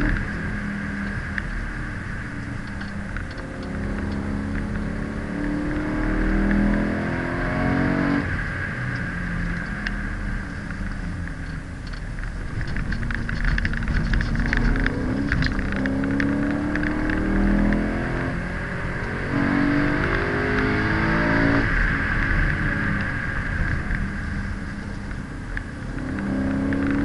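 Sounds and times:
car engine accelerating: 0.0s - 27.0s
road and wind noise: 0.0s - 27.0s.

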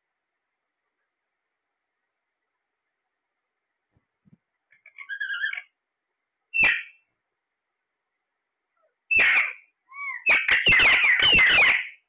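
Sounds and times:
parakeets squawking: 4.8s - 5.7s, 6.6s - 7.0s, 9.1s - 12.0s.

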